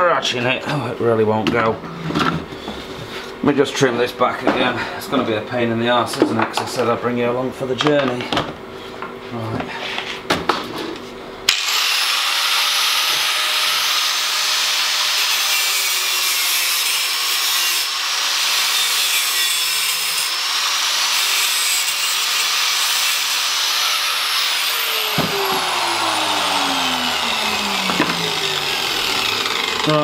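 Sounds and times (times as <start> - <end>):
grinder disc winding down: 11.5 - 14.8, 23.3 - 30.0
angle grinder cutting steel: 11.5 - 30.0.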